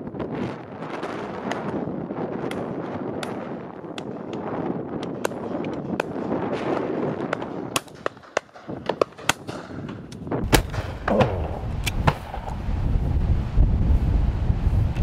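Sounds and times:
wind gusts buffeting microphone: 0.0 - 15.0
shotgun shots: 5.1 - 12.5.

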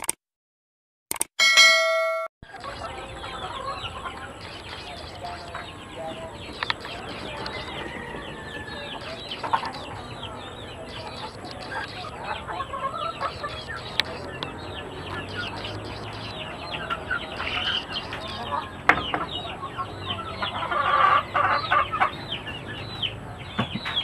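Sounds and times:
short chime: 1.4 - 2.3
chickens clucking: 2.4 - 24.0.

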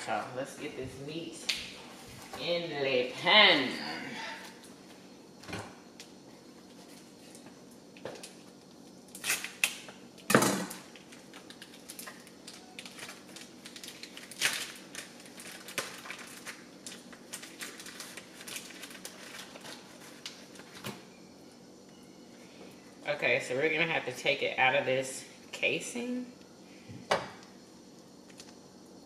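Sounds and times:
plastic packaging crinkling and tearing: 9.1 - 9.8, 10.9 - 20.8.

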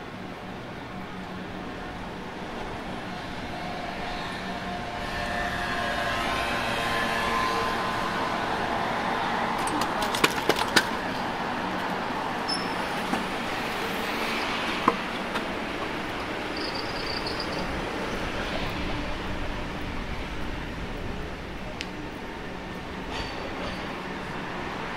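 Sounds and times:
traffic passing: 0.0 - 24.9.

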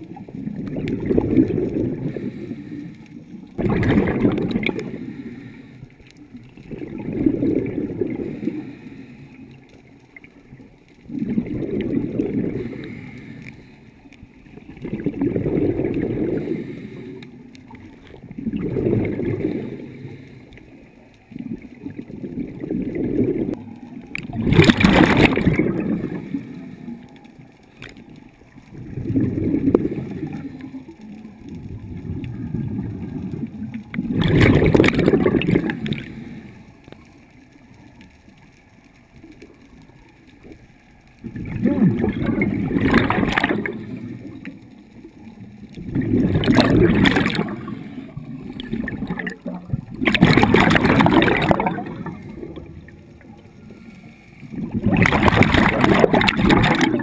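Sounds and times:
air bubbles gurgling: 0.0 - 5.6, 6.2 - 8.8, 10.0 - 36.4, 39.2 - 57.0
diver breathing through regulator: 1.7 - 3.2, 4.8 - 6.1, 8.0 - 9.6, 11.9 - 14.0, 15.4 - 17.5, 18.6 - 20.8.

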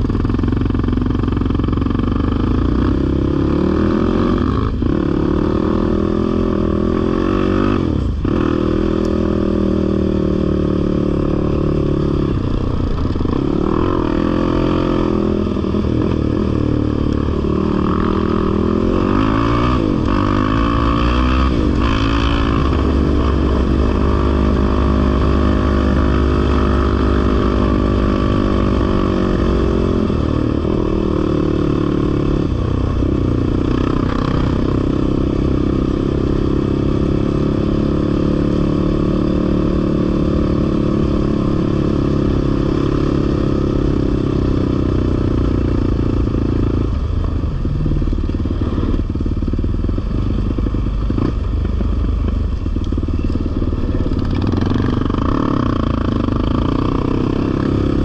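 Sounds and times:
off-road vehicle engine revving: 1.8 - 47.0, 50.1 - 58.0.

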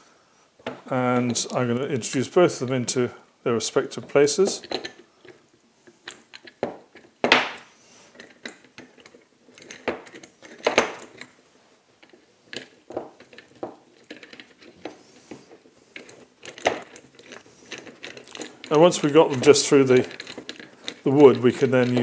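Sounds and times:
metal clicks: 12.0 - 22.0.

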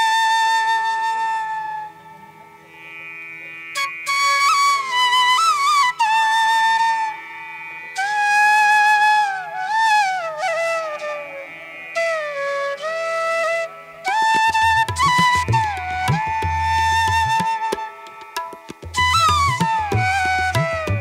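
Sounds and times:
flute melody: 3.8 - 7.2, 8.0 - 21.0.

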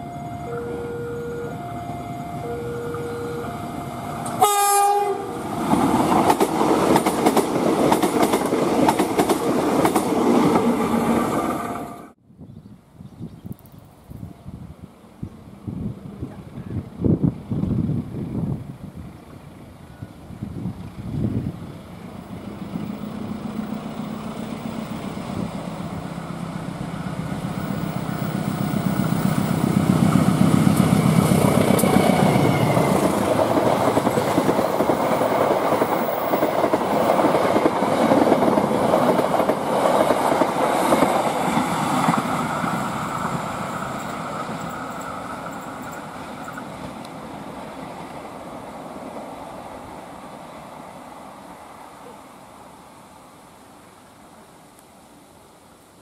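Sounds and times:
diesel locomotive engine drone: 0.0 - 12.2, 14.3 - 55.7
train wheels clattering over rails: 5.6 - 11.4, 27.5 - 47.0.

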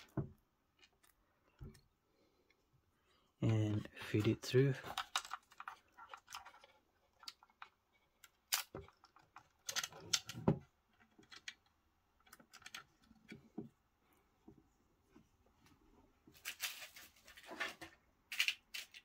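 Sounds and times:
metal connector clicking and scraping: 4.9 - 13.4.

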